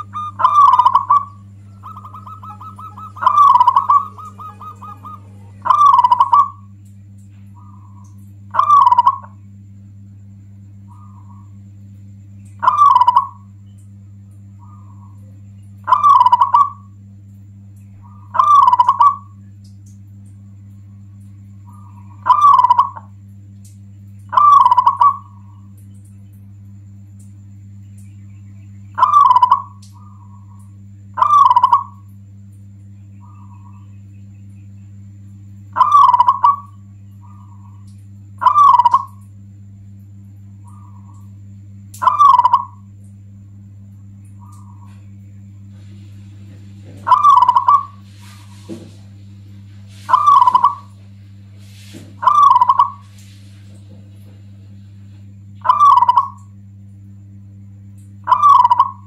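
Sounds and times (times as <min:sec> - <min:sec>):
dove cooing: 0:00.0 - 0:06.8, 0:07.5 - 0:09.4, 0:12.6 - 0:13.5, 0:14.6 - 0:17.0, 0:18.0 - 0:19.4, 0:21.4 - 0:23.2, 0:24.3 - 0:25.7, 0:29.0 - 0:32.1, 0:35.7 - 0:39.2, 0:40.6 - 0:41.3, 0:42.0 - 0:42.9, 0:44.4 - 0:54.5, 0:55.6 - 0:56.6, 0:58.2 - 0:59.0
steady low hum: 0:00.0 - 0:59.0.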